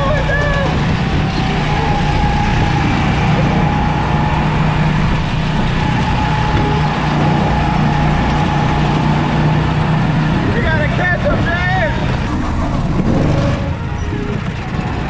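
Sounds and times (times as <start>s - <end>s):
go-kart engine running: 0.0s - 15.0s.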